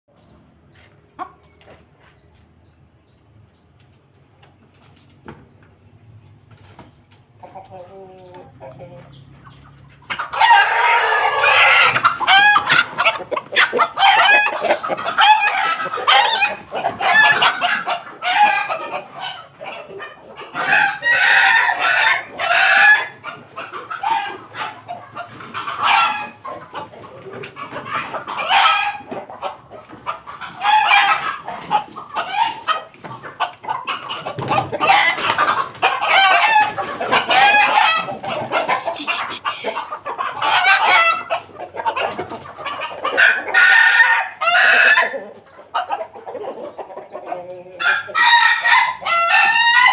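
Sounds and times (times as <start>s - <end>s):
chickens clucking: 0.1s - 49.9s
roosters crowing: 7.4s - 49.9s.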